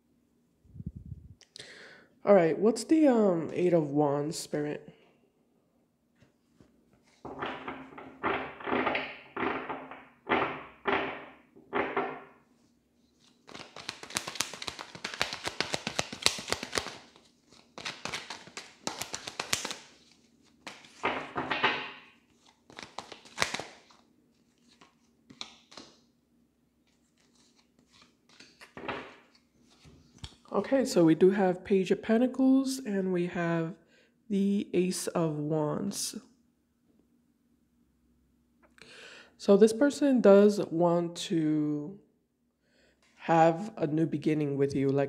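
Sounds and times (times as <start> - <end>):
cards being shuffled: 13.0 - 26.1, 26.8 - 30.5
cards clicking rapidly: 13.5 - 20.0, 20.6 - 24.0.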